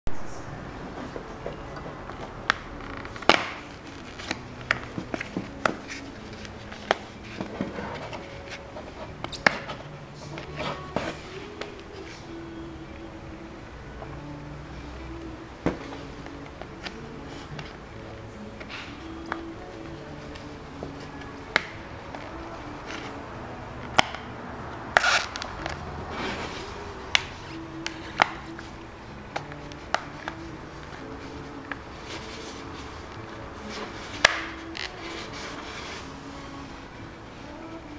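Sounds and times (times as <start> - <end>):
scraping and handling noise: 0.2 - 13.0, 14.0 - 37.9
scraping rustle: 25.0 - 28.7, 29.5 - 36.8.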